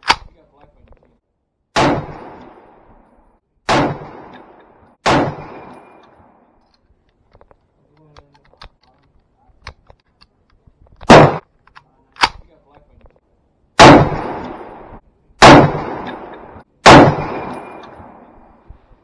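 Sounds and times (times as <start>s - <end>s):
rifle shots with echo: 1.7s - 2.9s, 3.6s - 6.4s, 11.0s - 11.4s, 13.8s - 18.6s
light clicks and rattles: 6.0s - 13.2s.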